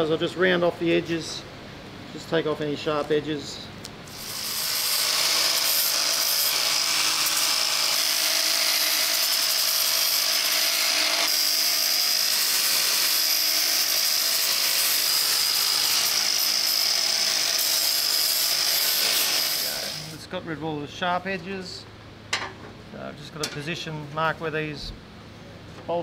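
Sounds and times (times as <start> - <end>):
angle grinder grinding steel: 4.1 - 20.2.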